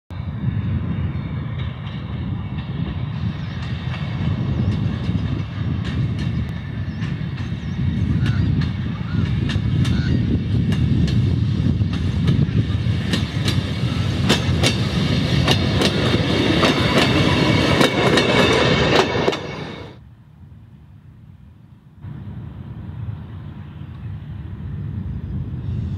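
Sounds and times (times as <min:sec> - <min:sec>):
rail trolley engine rumble: 0:00.1 - 0:25.9
wheels clicking over rail joints: 0:13.1 - 0:19.8.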